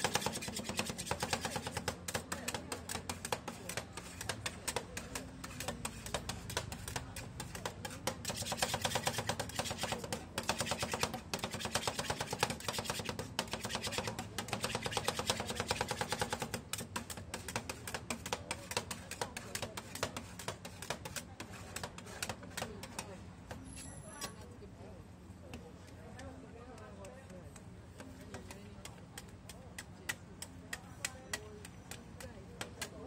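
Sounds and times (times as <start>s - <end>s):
metal spatulas chopping on cold plate: 0.0s - 24.4s.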